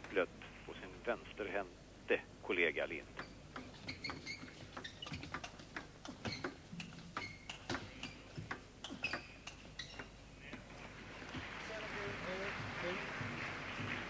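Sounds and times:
table tennis ball ticking: 3.2s - 10.2s.

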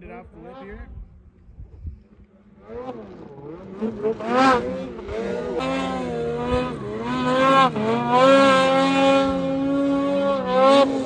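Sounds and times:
snowmobile engine revving: 2.4s - 11.0s.

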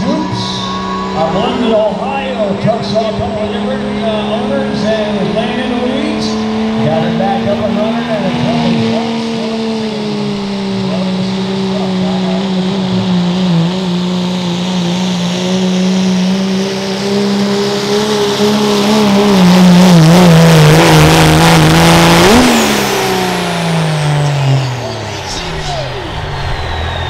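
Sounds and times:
diesel truck engine at high revs: 0.0s - 27.0s.

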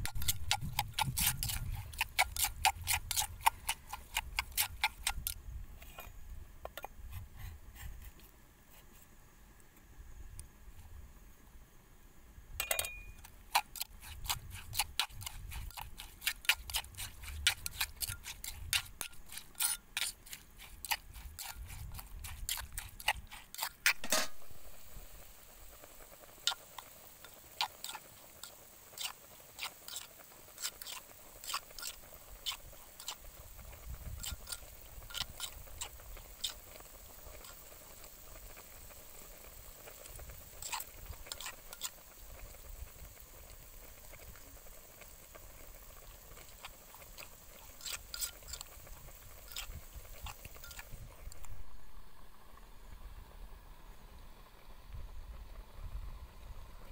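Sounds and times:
utensils scraping clay mortar: 0.0s - 9.0s, 12.7s - 25.0s, 26.4s - 38.7s, 39.4s - 42.0s, 45.4s - 51.6s
pot of water boiling: 0.0s - 56.9s.

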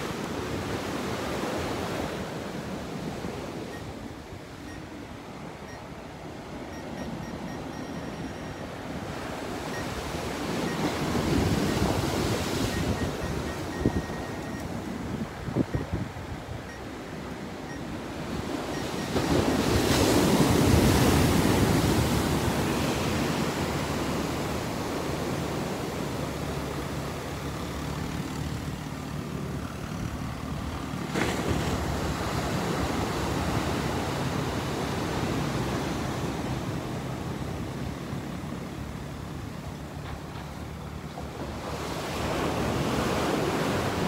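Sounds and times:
small waves breaking on beach: 0.0s - 7.8s, 8.6s - 44.0s
wind on microphone: 9.5s - 25.0s.

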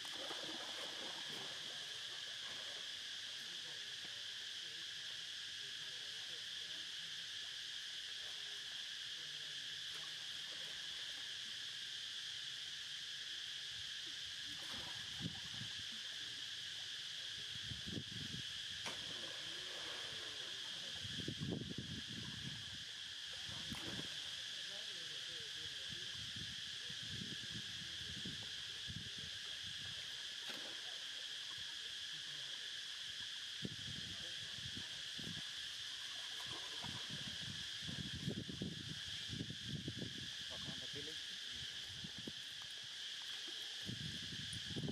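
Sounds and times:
soft water splashes: 0.0s - 3.0s, 14.5s - 16.4s, 18.7s - 22.4s, 23.3s - 24.7s, 29.8s - 31.8s, 36.0s - 37.4s
high insect chorus droning: 0.0s - 44.9s.

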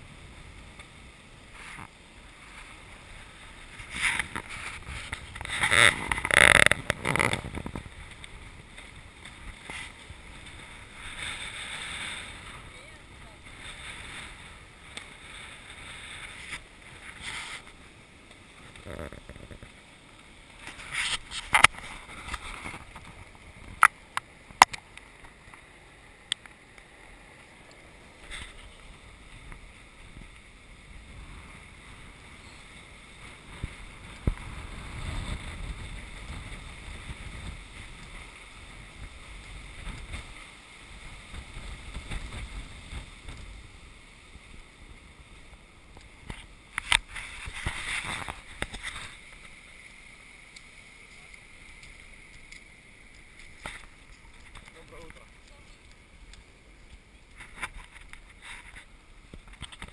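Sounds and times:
surf hissing: 0.0s - 59.9s
wind buffeting microphone: 28.7s - 40.4s.

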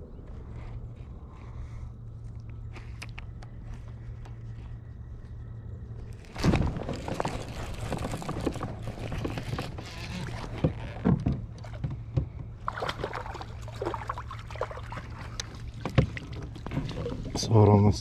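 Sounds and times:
water sloshing against hull: 0.2s - 18.0s.

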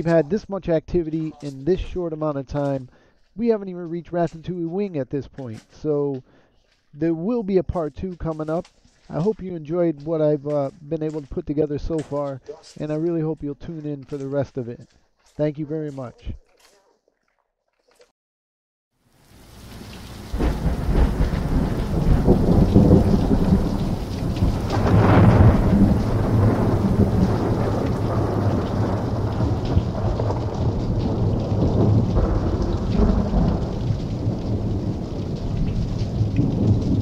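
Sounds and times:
rain: 6.3s - 11.2s, 19.0s - 37.0s
low rolling thunder: 20.2s - 37.0s.

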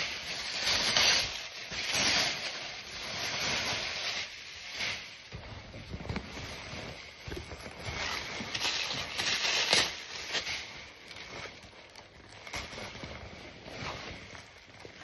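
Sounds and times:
plastic wrapping crinkling: 0.0s - 15.0s.

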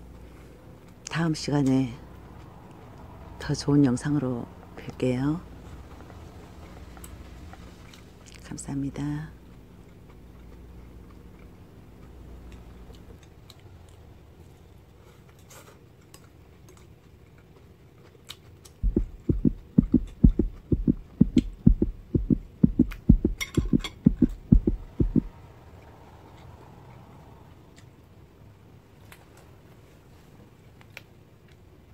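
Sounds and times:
faint steady hum: 0.0s - 31.9s
deep rhythmic low thumps: 18.8s - 25.3s.

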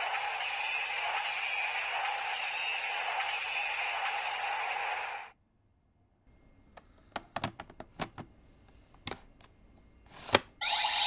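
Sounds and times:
toy electronic sound effect: 10.6s - 11.0s.

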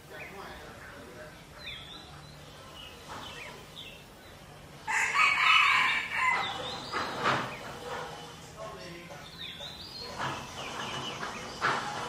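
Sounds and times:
rooster crowing: 4.9s - 6.7s.

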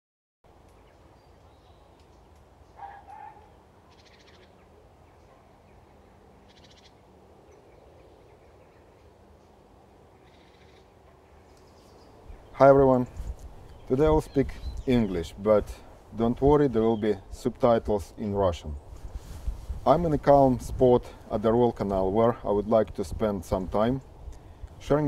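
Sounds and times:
low background hiss: 0.5s - 25.0s
bird calls: 0.6s - 12.6s, 13.6s - 15.9s
high rapid rattling bird calls: 3.9s - 4.6s, 6.5s - 7.0s, 10.2s - 10.9s.

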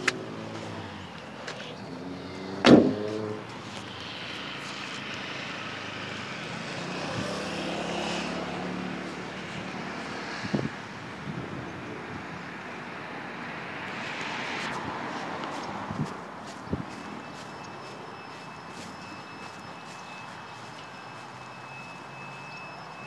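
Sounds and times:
distant engine drone: 0.0s - 23.0s.

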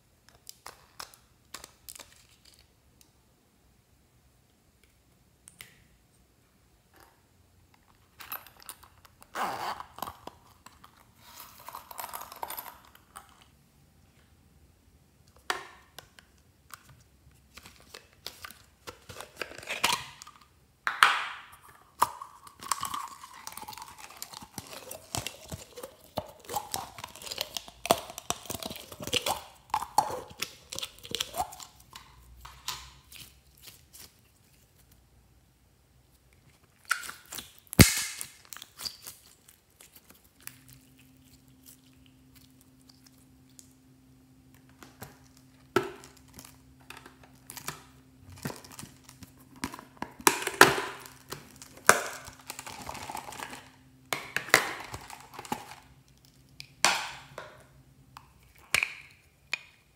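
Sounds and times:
slime squishing: 21.6s - 35.0s, 36.1s - 43.8s.

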